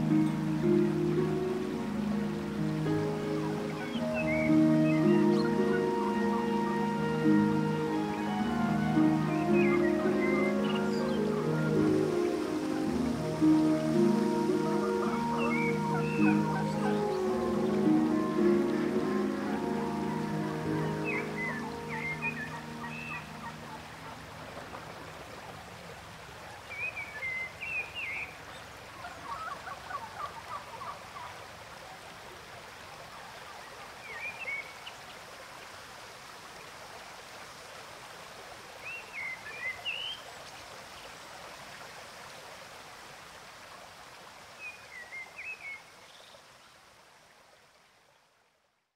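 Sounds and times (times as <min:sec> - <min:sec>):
music: 0:00.0 - 0:24.0
running water: 0:00.0 - 0:48.9
bird chirps: 0:13.6 - 0:24.2.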